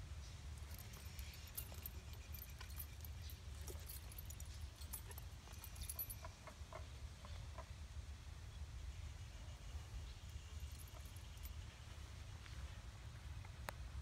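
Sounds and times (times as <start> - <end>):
bridle and chain jingling: 0.2 - 7.6, 10.2 - 11.9.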